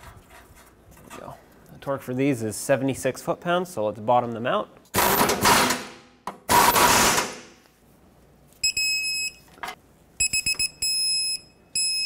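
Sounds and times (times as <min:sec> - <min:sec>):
torque wrench electronic beep: 0:10.2 - 0:12.0.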